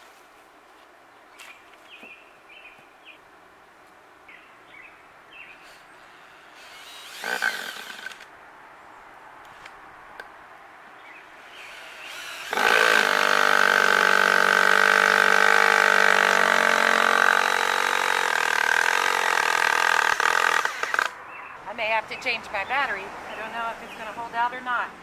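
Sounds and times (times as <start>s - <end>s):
cordless drill whining: 6.5s - 8.3s, 11.6s - 21.1s.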